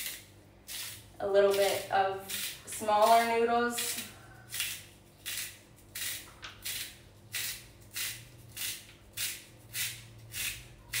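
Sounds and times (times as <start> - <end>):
spiralizer blade scraping carrot: 0.0 - 11.0.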